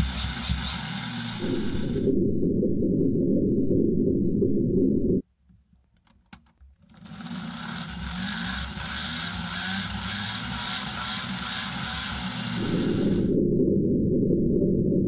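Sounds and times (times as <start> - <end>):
plastic gears whirring: 0.0 - 2.1, 6.1 - 13.3.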